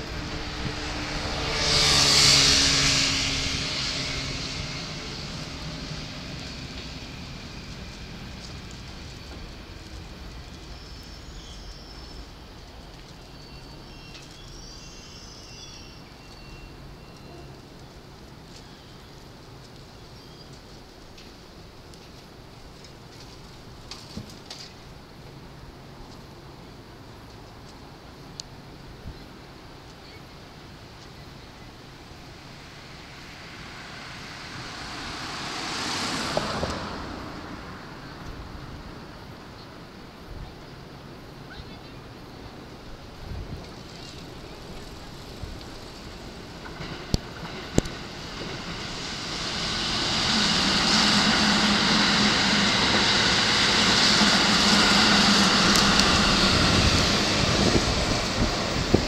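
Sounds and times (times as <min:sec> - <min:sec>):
vehicle passing by: 0:00.0 - 0:09.0, 0:32.5 - 0:38.8
steady low rumble: 0:00.0 - 0:13.8, 0:42.7 - 0:59.0.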